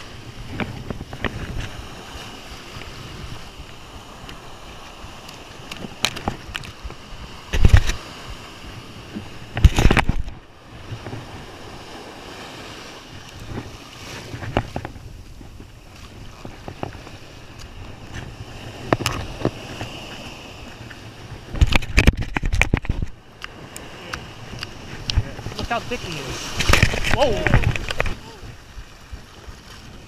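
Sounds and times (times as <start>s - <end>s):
ocean surf: 0.0s - 30.0s.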